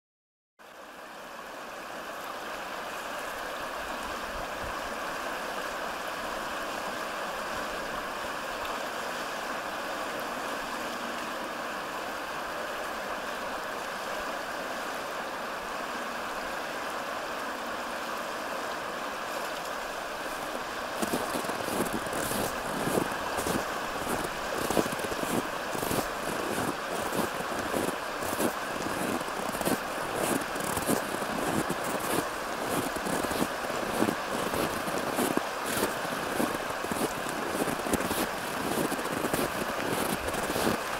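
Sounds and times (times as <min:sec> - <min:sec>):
stream rushing: 0:00.6 - 0:40.9
footsteps walking: 0:21.0 - 0:40.8.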